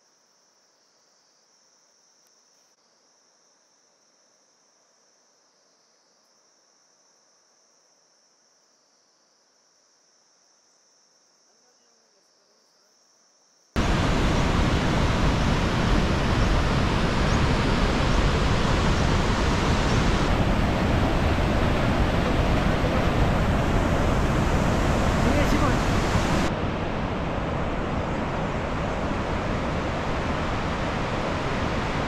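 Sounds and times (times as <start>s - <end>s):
faint insect drone: 0.0s - 32.0s
river rushing: 13.8s - 32.0s.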